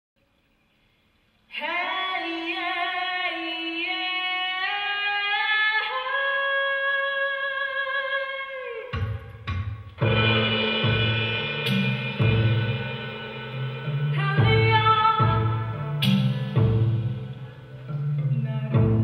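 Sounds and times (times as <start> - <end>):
deep drum hits: 9.0 - 17.3.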